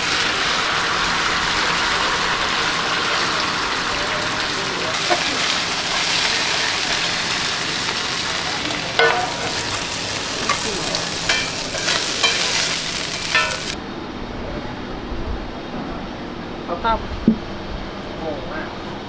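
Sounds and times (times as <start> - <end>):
omelette sizzling in hot oil: 0.0 - 13.8
metal spatula scraping a pan: 11.3 - 13.8.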